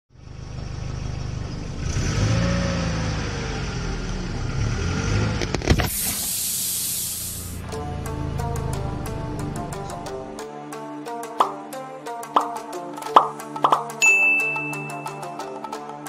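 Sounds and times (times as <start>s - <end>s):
car engine rumbling: 0.1s - 9.8s
air hissing from punctured tyre: 5.5s - 7.7s
plucked music: 7.6s - 16.0s.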